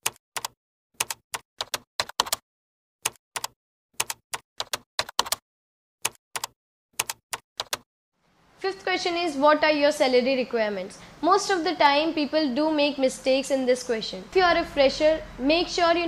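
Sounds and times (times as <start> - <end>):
keystroke clicks: 0.0 - 2.4, 3.1 - 5.4, 6.0 - 7.8.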